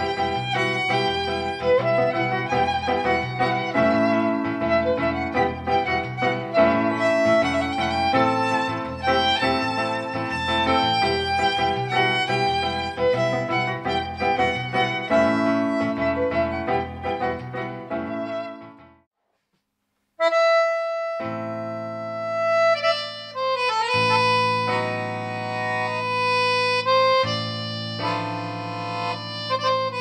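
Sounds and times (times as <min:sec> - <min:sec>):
accordion playing: 0:00.0 - 0:18.6, 0:20.2 - 0:30.0
violin playing: 0:00.0 - 0:18.7.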